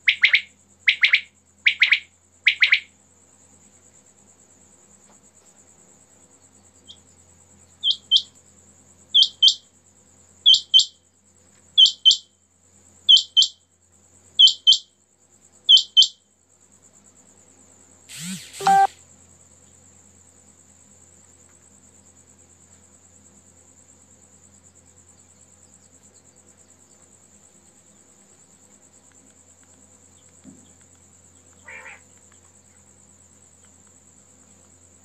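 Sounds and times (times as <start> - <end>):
quail calling: 0.0 - 2.9, 31.6 - 32.0.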